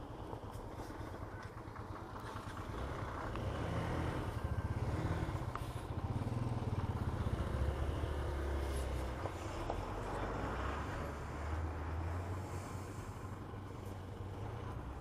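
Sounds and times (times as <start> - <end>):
motorcycle engine running: 0.0 - 9.4.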